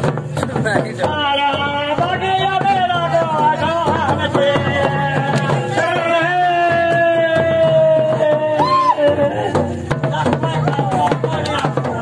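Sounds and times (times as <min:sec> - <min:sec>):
drum beats: 0:00.0 - 0:12.0.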